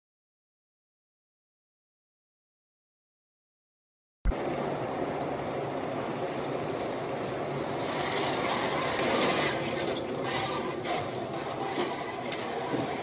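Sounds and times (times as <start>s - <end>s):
car road and wind noise: 4.3s - 13.0s.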